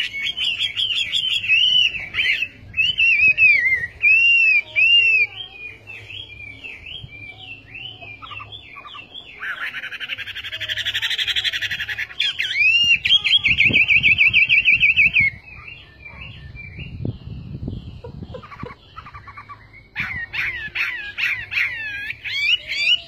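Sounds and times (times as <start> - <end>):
bird singing whistled notes: 0.0 - 23.0.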